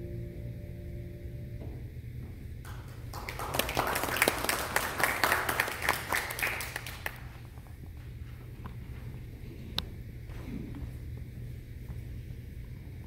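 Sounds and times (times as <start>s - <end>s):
hands clapping: 2.6s - 7.3s.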